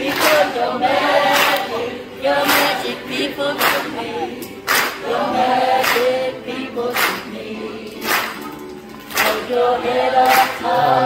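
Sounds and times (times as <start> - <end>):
group singing: 0.0 - 11.0
sharp hand claps: 0.1 - 0.5, 1.3 - 1.7, 2.4 - 2.8, 3.6 - 5.1, 5.8 - 6.2, 6.9 - 9.6, 10.2 - 10.7.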